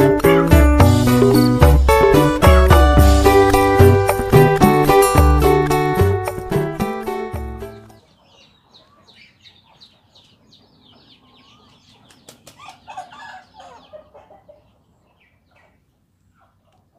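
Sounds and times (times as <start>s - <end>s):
faint chickens clucking: 8.0s - 16.9s.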